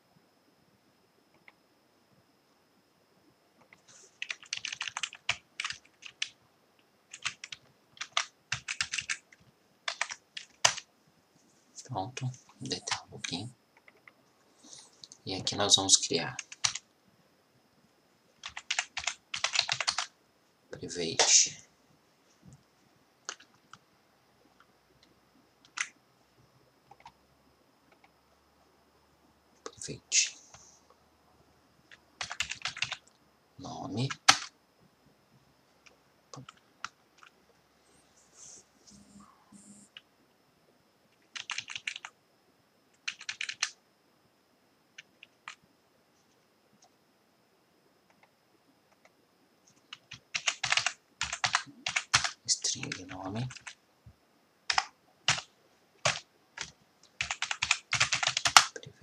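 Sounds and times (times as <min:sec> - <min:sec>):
faint high whine: 0:00.0 - 0:59.0
typing on computer keyboard: 0:03.6 - 0:06.4, 0:07.1 - 0:10.8, 0:12.2 - 0:14.2, 0:16.4 - 0:16.8, 0:18.4 - 0:20.1, 0:23.2 - 0:23.8, 0:25.6 - 0:26.0, 0:26.9 - 0:27.2, 0:32.2 - 0:33.1, 0:34.1 - 0:34.5, 0:41.3 - 0:42.1, 0:43.0 - 0:43.8, 0:49.9 - 0:53.8, 0:54.7 - 0:58.9.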